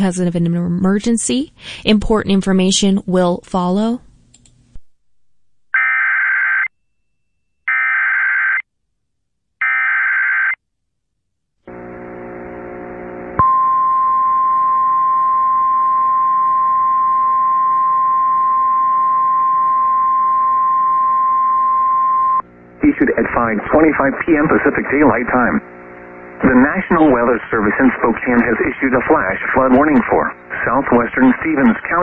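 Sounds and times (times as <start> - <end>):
single-pitch attention tone: 13.4 - 22.4.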